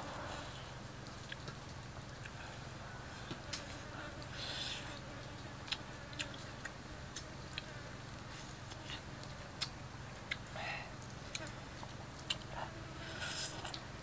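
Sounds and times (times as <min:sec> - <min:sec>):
steady low hum: 0:00.0 - 0:14.0
people eating with fingers: 0:05.6 - 0:14.0.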